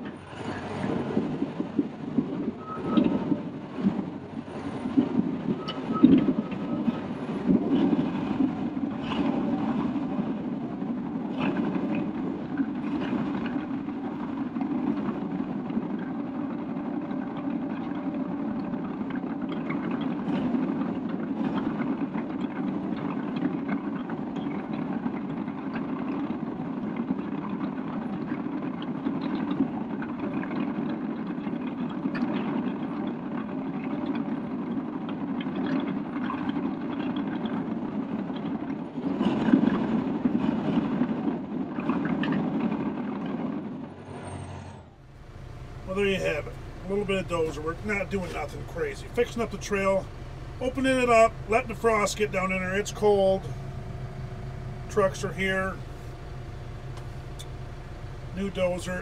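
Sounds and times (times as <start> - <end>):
diesel engine running: 43.6 - 59.0
steel tracks clanking: 44.0 - 59.0.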